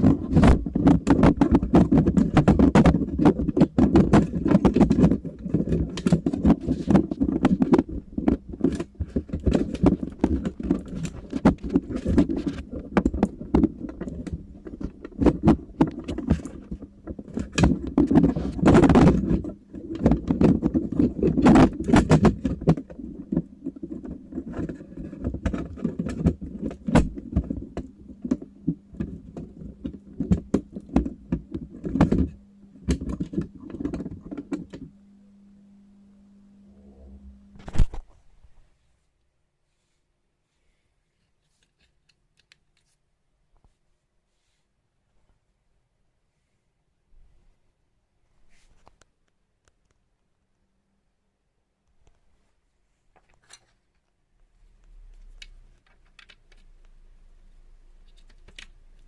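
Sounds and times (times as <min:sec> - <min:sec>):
hard objects clicking and rattling: 0:00.0 - 0:34.9, 0:54.9 - 0:56.8
low steady hum: 0:00.0 - 0:39.6, 0:49.5 - 0:59.0.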